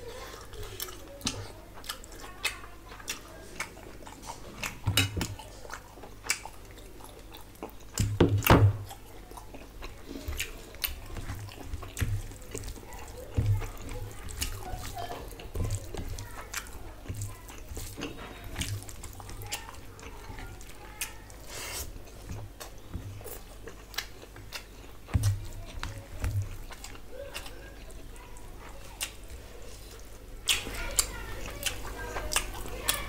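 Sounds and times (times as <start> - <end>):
wet chewing and lip-smacking: 0.3 - 33.0
fingers squishing rice: 9.0 - 33.0.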